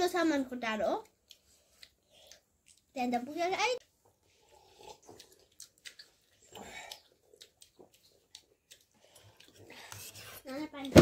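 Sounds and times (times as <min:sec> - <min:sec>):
child chewing food: 0:01.0 - 0:10.9.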